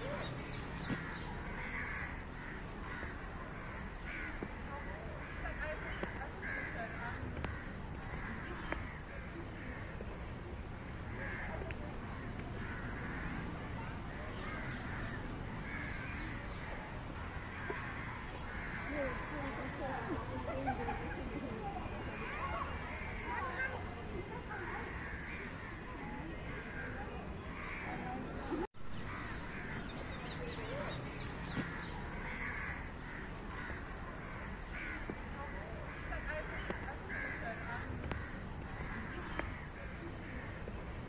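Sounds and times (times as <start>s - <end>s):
low background noise: 0.0s - 41.0s
crows cawing: 0.1s - 10.0s, 11.0s - 13.6s, 14.3s - 19.8s, 24.5s - 26.0s, 29.0s - 40.7s.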